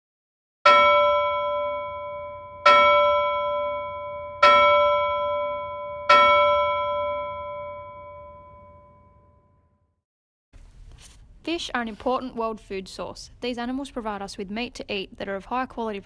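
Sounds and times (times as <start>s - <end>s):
bell ringing: 0.7s - 9.8s.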